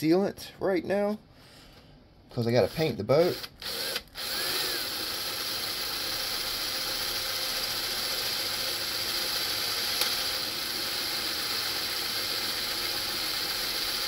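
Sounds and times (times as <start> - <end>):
electric drill whirring: 3.2 - 14.0.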